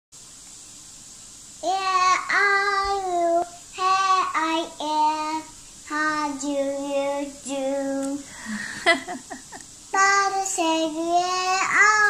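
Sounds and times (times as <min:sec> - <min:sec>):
girl singing: 0:01.6 - 0:08.4, 0:09.9 - 0:12.0.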